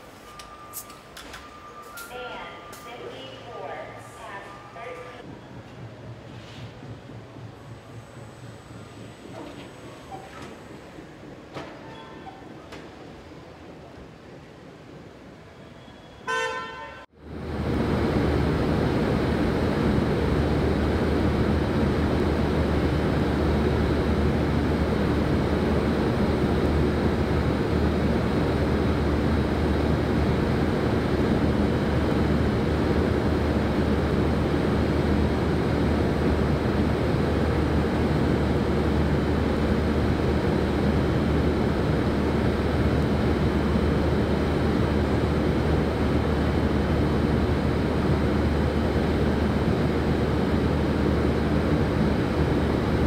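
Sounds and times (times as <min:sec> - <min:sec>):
low machinery hum: 0:01.5 - 0:15.0, 0:17.1 - 0:53.0.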